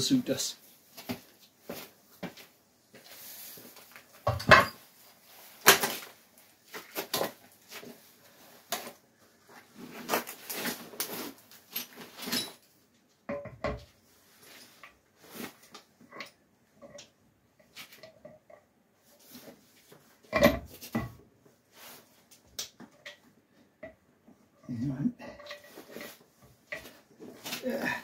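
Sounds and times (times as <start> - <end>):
metal clunks and scrapes: 20.3 - 21.2, 25.2 - 27.0.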